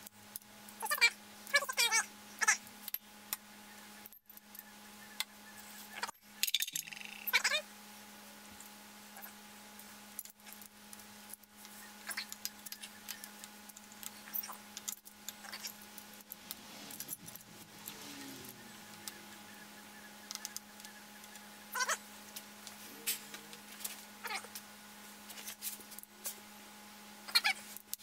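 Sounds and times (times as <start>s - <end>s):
steady hum: 0.0s - 28.0s
metal chain clinking and rattling: 12.1s - 18.6s.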